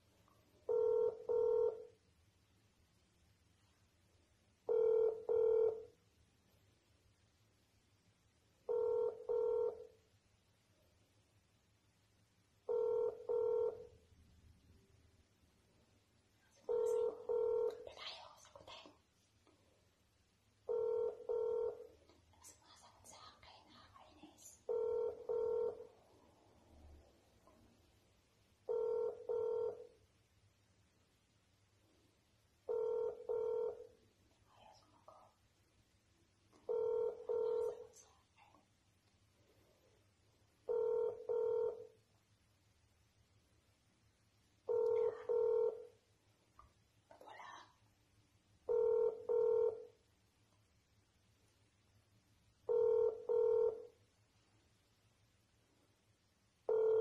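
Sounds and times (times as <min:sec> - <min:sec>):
phone ringback double beep: 0:00.7 - 0:01.9, 0:04.7 - 0:05.9, 0:08.7 - 0:09.8, 0:12.7 - 0:13.9, 0:16.7 - 0:17.8, 0:20.7 - 0:21.8, 0:24.7 - 0:25.9, 0:28.7 - 0:29.9, 0:32.7 - 0:33.9, 0:36.7 - 0:37.8, 0:40.7 - 0:41.9, 0:44.7 - 0:45.9, 0:48.7 - 0:49.9, 0:52.7 - 0:53.9, 0:56.7 - 0:57.0.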